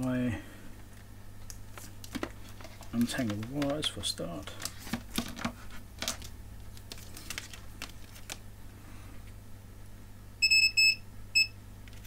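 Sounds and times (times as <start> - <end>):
multimeter short high beeps: 10.4 - 11.6.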